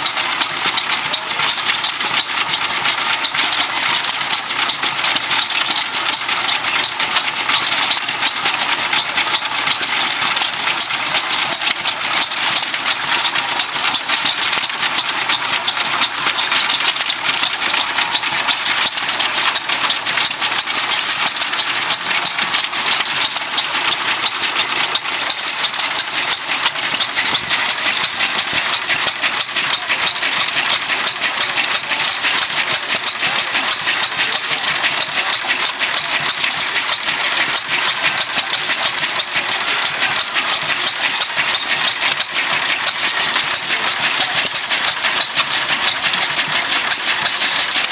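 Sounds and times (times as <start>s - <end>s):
stationary engines clattering: 0.0s - 47.9s.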